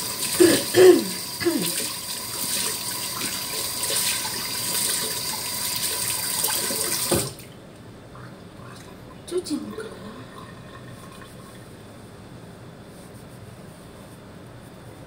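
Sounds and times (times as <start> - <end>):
water running from a tap: 0.0 - 7.5.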